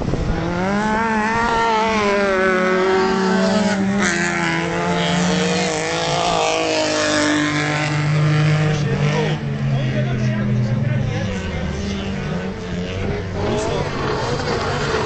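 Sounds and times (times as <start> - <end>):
race car engines accelerating: 0.0 - 15.0.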